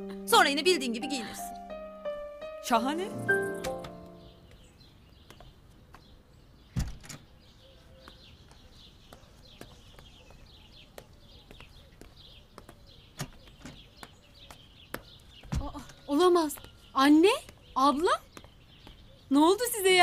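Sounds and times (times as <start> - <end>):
faint birds chirping: 0.0 - 20.0
door banging shut: 6.8 - 7.3
high heels on stone floor: 8.0 - 19.8.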